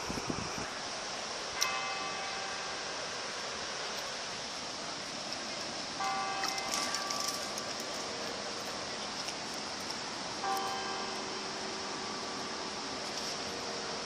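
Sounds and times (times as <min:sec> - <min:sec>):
steady hiss: 0:00.0 - 0:14.0
tower bell striking: 0:01.6 - 0:02.8, 0:06.0 - 0:07.8, 0:10.4 - 0:11.5.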